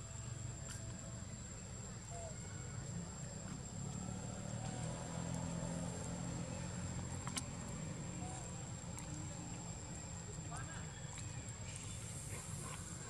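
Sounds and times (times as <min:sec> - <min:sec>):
vehicle engine hum: 0:00.0 - 0:13.0.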